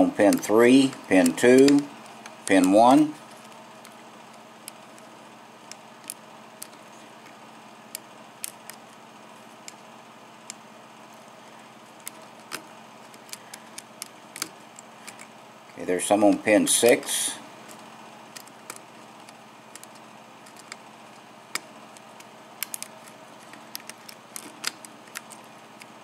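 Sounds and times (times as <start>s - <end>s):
lock pick clicking: 12.0s - 15.3s, 18.3s - 20.8s, 21.5s - 25.9s.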